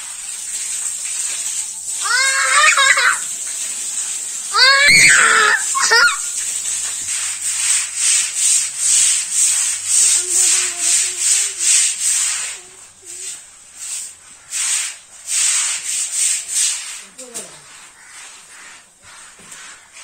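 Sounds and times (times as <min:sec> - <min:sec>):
calf licking and scraping bowl: 0:05.2 - 0:14.7.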